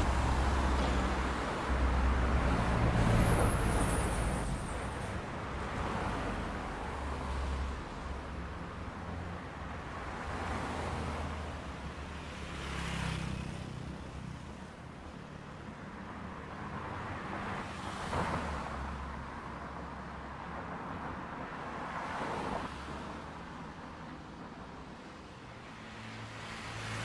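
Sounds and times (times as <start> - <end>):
low traffic rumble: 0.0 - 11.2
cars passing by: 0.0 - 27.0.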